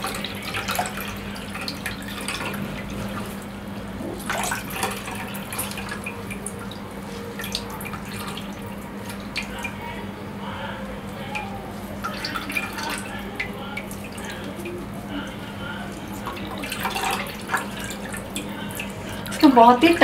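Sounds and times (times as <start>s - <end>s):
steady low hum: 0.0s - 20.0s
water dripping into a bowl: 11.1s - 20.0s.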